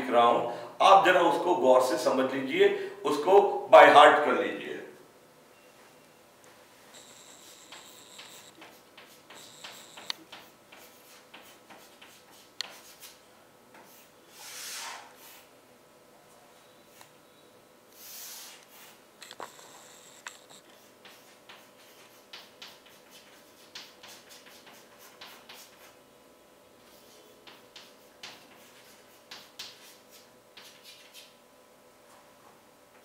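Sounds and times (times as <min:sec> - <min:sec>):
steady low hum: 0:00.0 - 0:14.4
chalk scratching on chalkboard: 0:07.1 - 0:13.2, 0:13.8 - 0:15.5, 0:18.0 - 0:26.0, 0:26.8 - 0:31.4.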